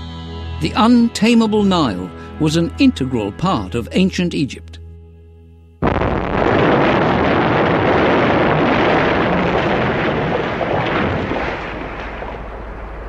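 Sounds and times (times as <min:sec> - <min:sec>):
rock blast explosion: 0:05.8 - 0:13.0
rumbling roar of falling debris: 0:05.8 - 0:13.0.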